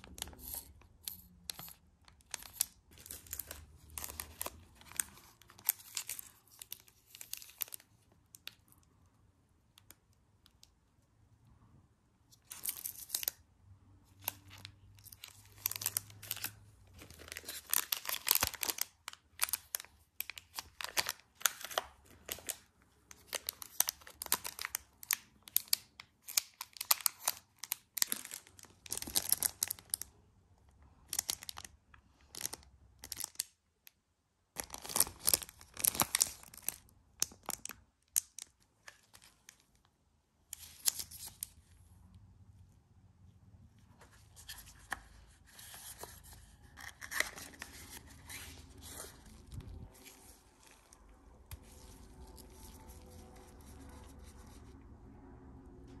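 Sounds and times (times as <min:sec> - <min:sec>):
plastic packaging crinkling: 0:00.0 - 0:08.8, 0:14.1 - 0:30.1, 0:31.1 - 0:33.5, 0:34.6 - 0:39.8, 0:44.4 - 0:54.8.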